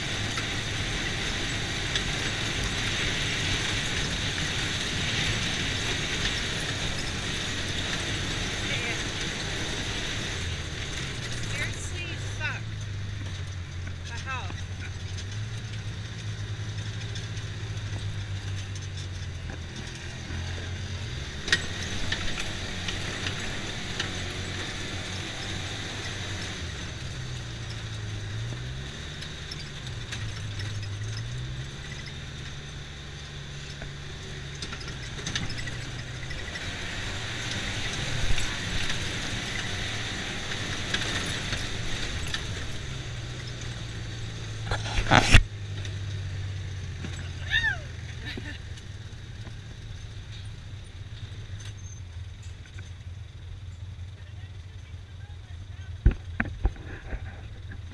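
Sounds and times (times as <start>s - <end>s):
knocks and rattles from bumps: 0.0s - 46.3s
vehicle engine running: 0.0s - 57.9s.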